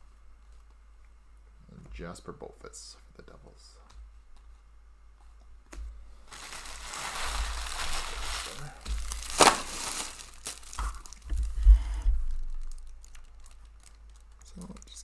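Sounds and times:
packaging wrapper crumpling: 0:06.3 - 0:15.0.

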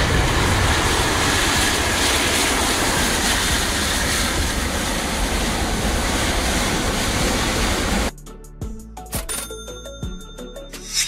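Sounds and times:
jet engines at taxi power: 0:00.0 - 0:08.1.

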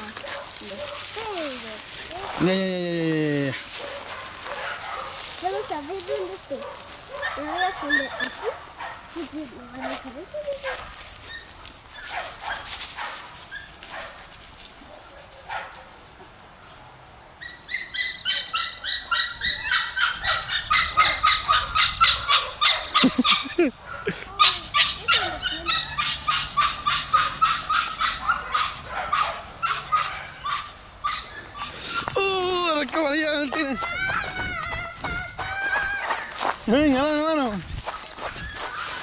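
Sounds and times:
puppy yipping: 0:03.8 - 0:14.2, 0:17.4 - 0:32.1, 0:33.8 - 0:36.5, 0:37.9 - 0:39.0.

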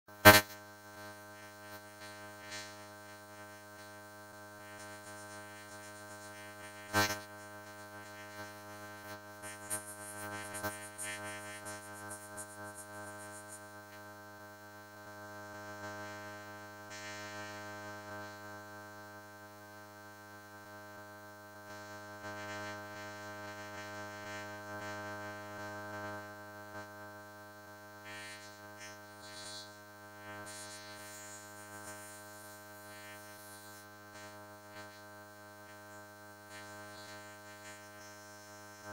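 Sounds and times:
buzzy drone of stacked tones: 0:00.3 - 0:13.8, 0:30.4 - 0:38.9.

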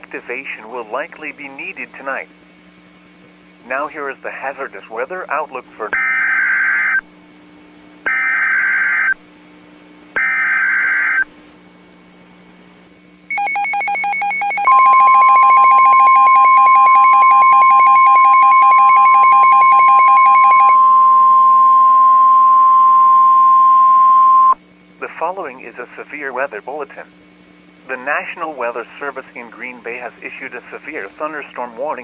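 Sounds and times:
rapid electronic alarm beeping: 0:08.1 - 0:09.2, 0:10.2 - 0:11.3, 0:13.3 - 0:20.9
steady single-pitched alarm tone: 0:08.1 - 0:09.2, 0:10.2 - 0:11.3, 0:13.3 - 0:24.6
harsh digital data bursts: 0:10.2 - 0:11.2, 0:13.3 - 0:20.8.

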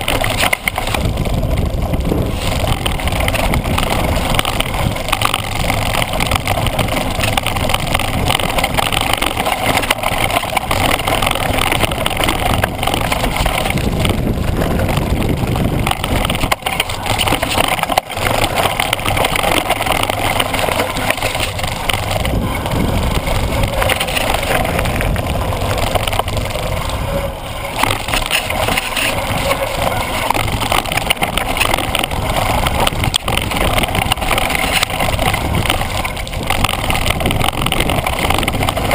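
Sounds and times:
bike rattling: 0:00.0 - 0:38.9
bike tyres rumbling on gravel: 0:00.0 - 0:38.9
wind on microphone: 0:00.0 - 0:38.9.

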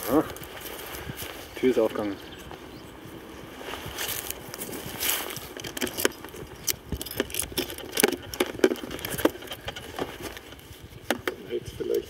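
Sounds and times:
metal buckle clicking and rattling: 0:05.0 - 0:11.4.

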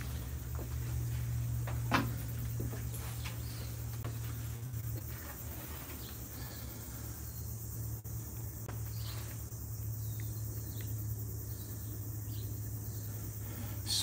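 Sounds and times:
low hum: 0:00.0 - 0:14.0
faint bird chirps: 0:08.7 - 0:14.0.

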